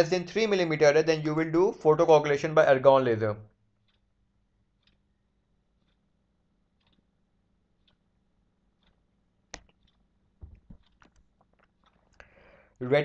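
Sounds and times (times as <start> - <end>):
faint ticks: 4.8 - 5.1, 5.7 - 6.1, 6.7 - 7.1, 8.7 - 10.1
sharp click: 8.8 - 11.3
clicks and knocks: 9.5 - 12.2.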